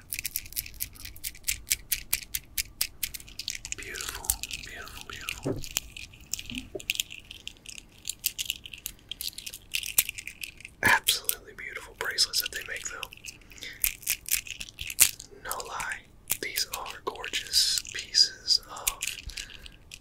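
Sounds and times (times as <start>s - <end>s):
beads clicking together: 0.0s - 11.4s, 12.0s - 20.0s.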